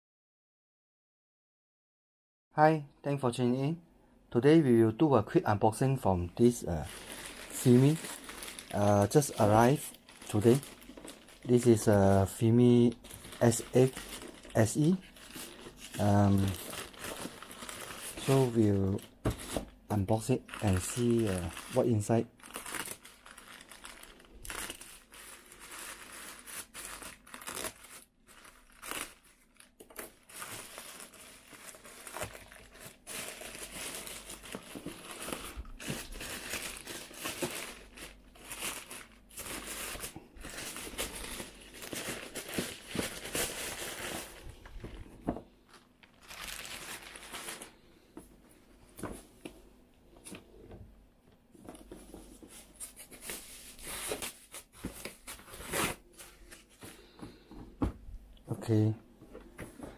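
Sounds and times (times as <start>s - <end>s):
plastic bag crinkling and tearing: 6.5s - 47.9s.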